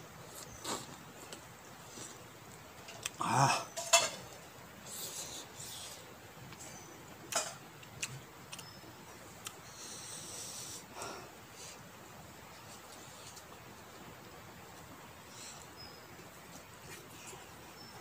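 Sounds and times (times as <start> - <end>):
hissing breaths: 4.8 - 6.2, 9.6 - 11.9.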